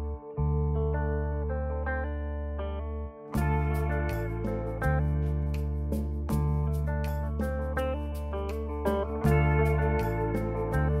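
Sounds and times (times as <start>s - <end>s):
guitar melody: 0.0s - 11.0s
beat: 3.4s - 11.0s.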